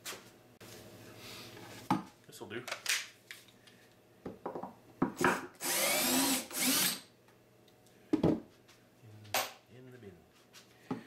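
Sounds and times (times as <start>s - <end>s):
drill motor running: 5.6s - 7.1s.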